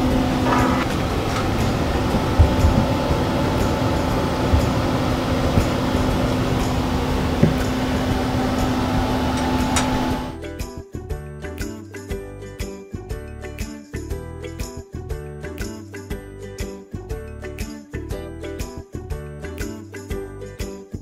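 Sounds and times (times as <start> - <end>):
fan humming: 0.0 - 10.4
light music: 0.0 - 21.0.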